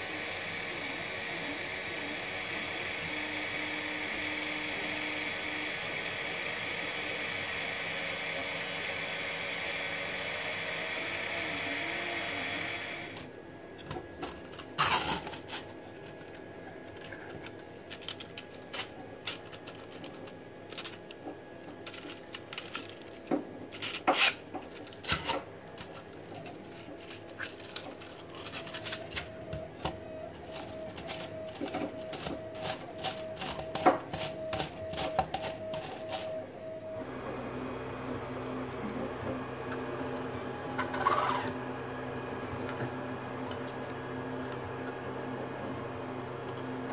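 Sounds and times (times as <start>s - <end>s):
stepper motors whining: 0.1s - 45.0s
plastic bearing clicking and rattling: 14.2s - 36.2s.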